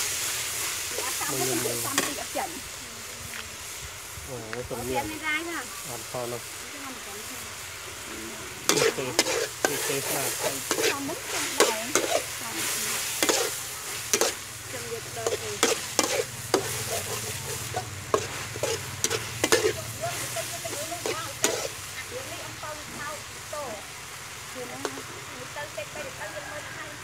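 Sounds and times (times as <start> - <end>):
meat sizzling in a wok: 0.0 - 27.0
metal spatula scraping a pan: 0.8 - 2.4, 8.5 - 22.1.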